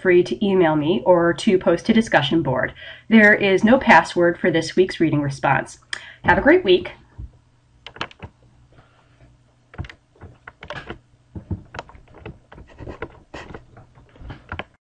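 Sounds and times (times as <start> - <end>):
faint low hum: 0.0 - 14.8
keyboard and mouse clicks: 7.8 - 8.4, 9.7 - 14.8.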